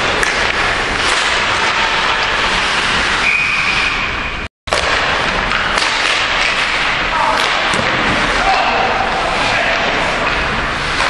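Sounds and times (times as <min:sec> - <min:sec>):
ice rink noise: 0:00.0 - 0:11.0
referee's whistle: 0:03.2 - 0:04.1.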